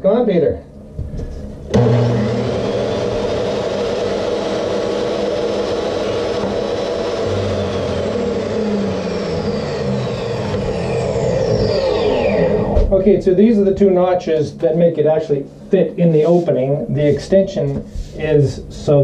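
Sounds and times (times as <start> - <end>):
falling whine: 1.6 - 13.1
table saw cutting plastic: 1.7 - 12.9.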